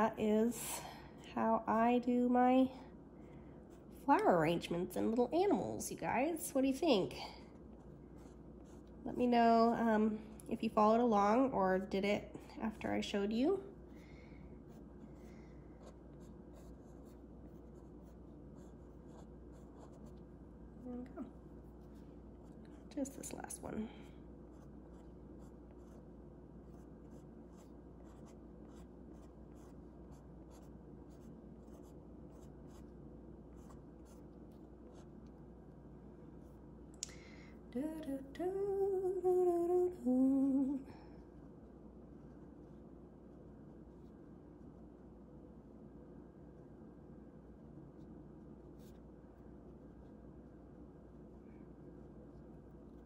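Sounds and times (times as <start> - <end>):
pen scratching on paper: 15.8 - 20.2, 24.5 - 35.1
woman humming: 20.8 - 21.4, 37.8 - 40.9.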